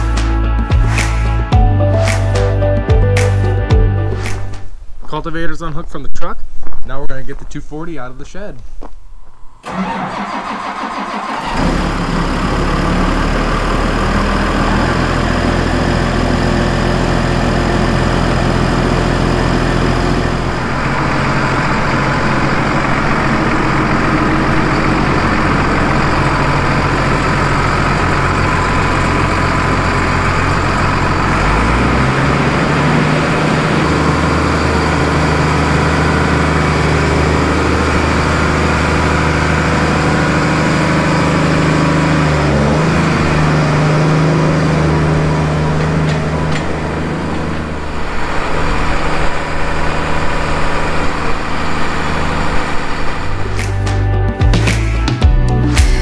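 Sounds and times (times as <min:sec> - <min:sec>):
tractor diesel engine idling: 0:09.6 - 0:54.2.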